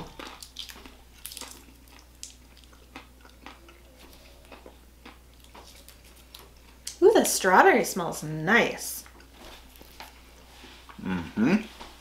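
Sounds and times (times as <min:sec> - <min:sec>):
chewing and crunching candy bar: 0:00.0 - 0:07.0.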